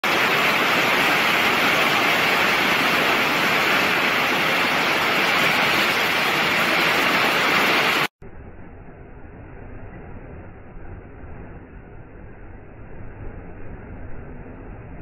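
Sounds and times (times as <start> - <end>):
waterfall crashing into pool: 0.0 - 8.1.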